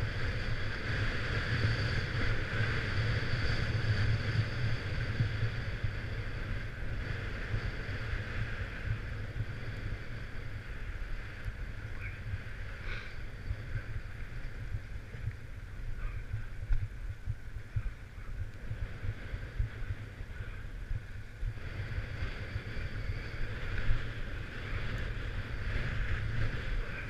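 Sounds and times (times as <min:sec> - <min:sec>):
wind buffeting microphone: 0:00.0 - 0:27.0.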